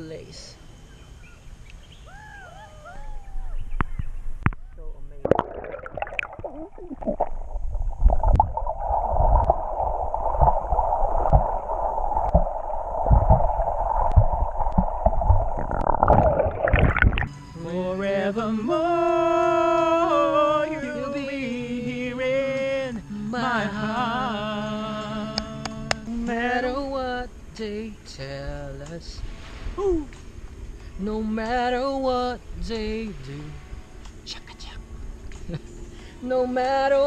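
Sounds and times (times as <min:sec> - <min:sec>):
muffled underwater sound: 0:03.1 - 0:17.2
bubbles: 0:05.1 - 0:17.3
low knocks: 0:12.2 - 0:16.3
person singing slow melody: 0:17.3 - 0:30.2, 0:30.9 - 0:33.7, 0:35.5 - 0:37.0.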